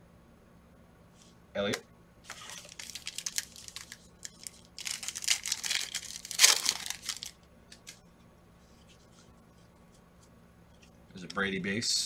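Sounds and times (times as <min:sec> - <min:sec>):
cards rustling and tapping: 0:02.3 - 0:08.0
foil pack crinkling: 0:02.3 - 0:08.0.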